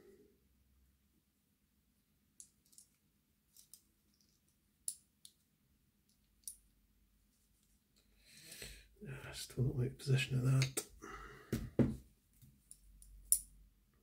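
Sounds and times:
small metal parts clicking: 2.4 - 5.4.

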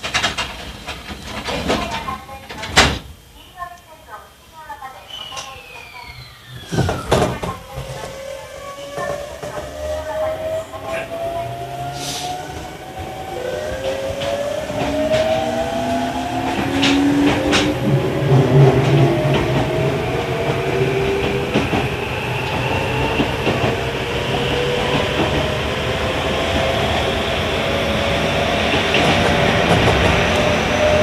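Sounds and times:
rail-joint clacks: 0.0 - 3.1, 8.9 - 12.4, 13.7 - 19.8, 28.7 - 31.0
train wheels rolling: 0.0 - 3.2, 5.1 - 31.0
train motors whining: 5.2 - 31.0.

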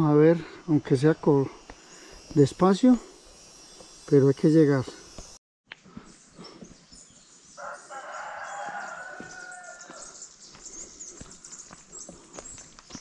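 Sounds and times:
rooster crowing: 7.6 - 10.2.

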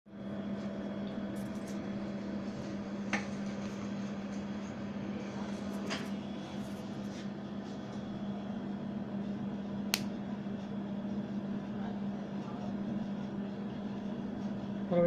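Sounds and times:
low mechanical hum: 0.1 - 15.0.

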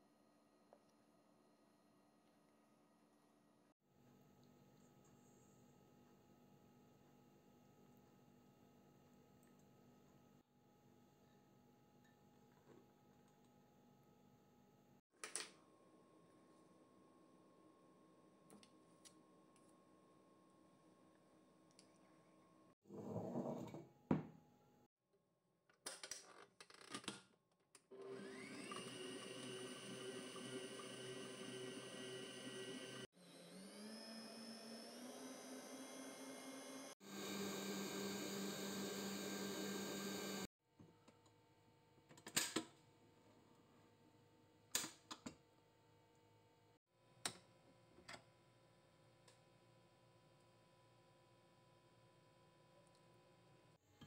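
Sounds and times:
stand mixer motor whining: 28.0 - 40.5.

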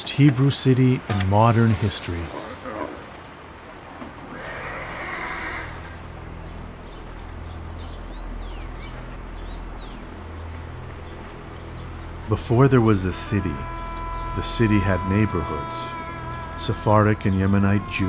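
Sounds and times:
horse neighing: 1.8 - 6.2.

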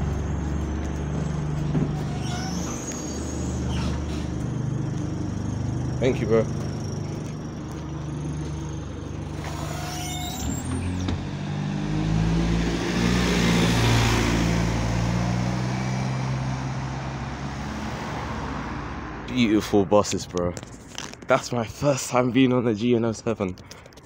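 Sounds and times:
bus diesel engine: 0.0 - 22.0
brake hiss and squeal: 1.9 - 4.4, 9.3 - 11.1.

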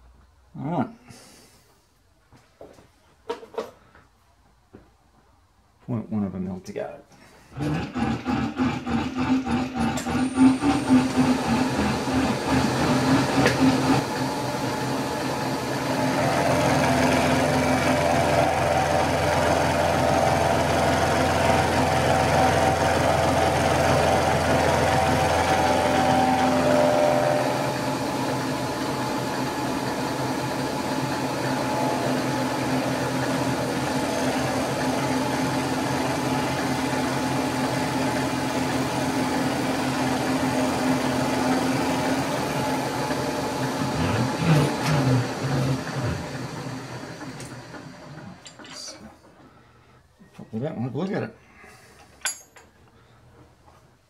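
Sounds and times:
milling machine cutting metal: 7.6 - 48.7
low hum: 21.3 - 37.0.

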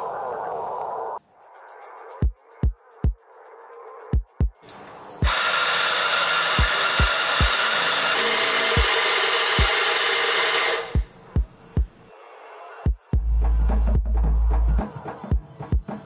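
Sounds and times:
music with thumping beat: 2.2 - 3.2, 4.1 - 4.7, 6.6 - 7.6, 8.8 - 9.0, 9.6 - 9.8, 10.8 - 12.1, 12.8 - 16.0
espresso grinder grinding coffee: 5.2 - 11.0.

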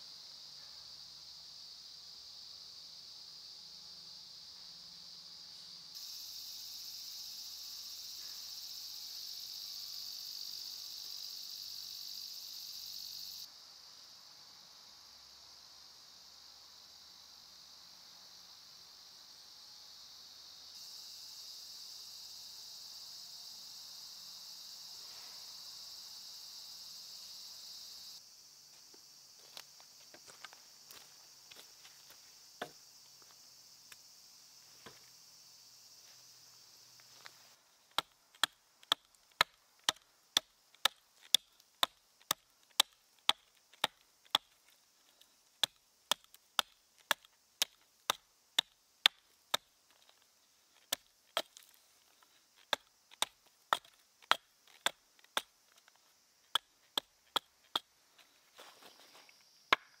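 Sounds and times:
insect hiss: 0.0 - 60.0
hatchet chopping wood: 37.9 - 44.5, 45.6 - 49.7, 52.6 - 55.8, 59.7 - 60.0.

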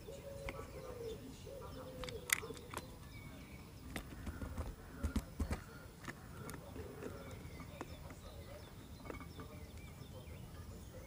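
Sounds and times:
birds pecking on plastic: 3.9 - 8.4.

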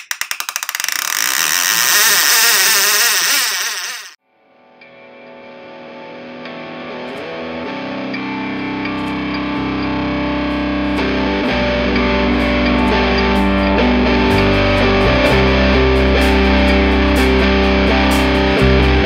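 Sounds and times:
distorted guitar rock music: 4.8 - 19.0
heavy bass: 7.5 - 19.0.

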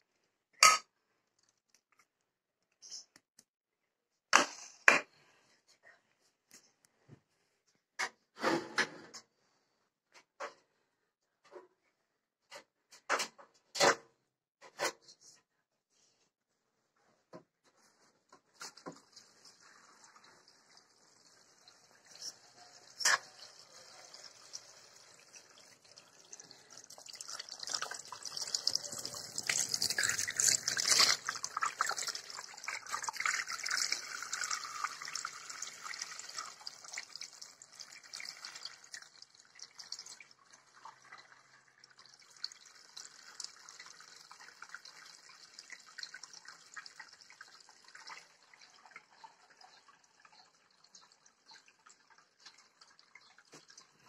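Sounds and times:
water dripping: 18.5 - 54.0
water splashing from hose: 22.2 - 40.2.

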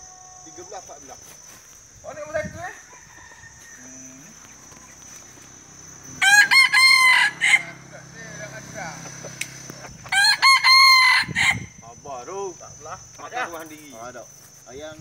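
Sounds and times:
rooster crowing: 2.6 - 5.0, 5.9 - 8.2, 10.0 - 11.8.

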